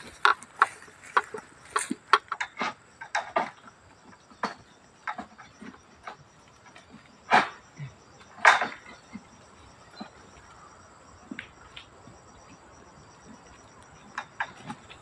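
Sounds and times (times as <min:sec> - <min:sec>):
crackling rustle: 0:00.0 - 0:04.4, 0:08.2 - 0:15.0
insect chirring: 0:00.0 - 0:15.0.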